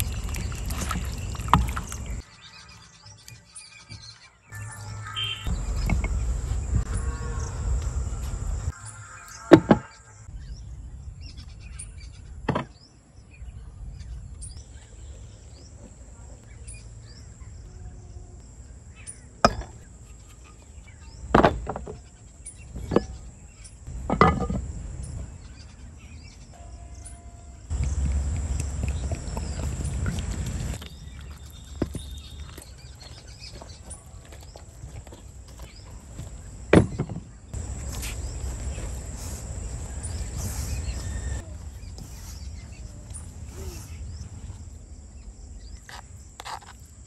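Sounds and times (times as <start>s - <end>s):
high-pitched insect drone: 4.6s - 10.3s
low rumbling handling noise: 5.5s - 8.8s, 9.6s - 26.4s, 27.7s - 46.6s.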